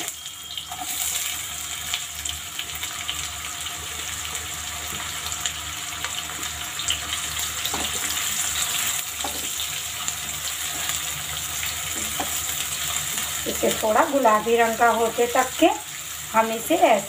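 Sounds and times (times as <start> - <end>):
onions sizzling in oil: 0.0 - 17.0
spatula stirring: 7.6 - 13.3.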